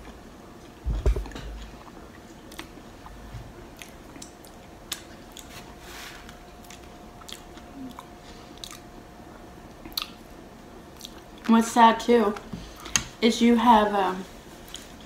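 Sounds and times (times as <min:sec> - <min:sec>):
person chewing crunchy food: 0:00.0 - 0:10.2, 0:11.0 - 0:11.5
wet mouth clicks: 0:06.6 - 0:08.8, 0:09.8 - 0:10.2.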